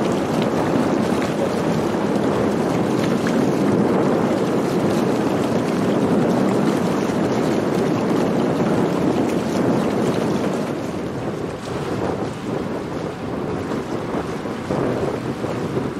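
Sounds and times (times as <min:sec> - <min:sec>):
water rushing around hulls: 0:00.0 - 0:15.9
wind rushing: 0:00.0 - 0:15.9.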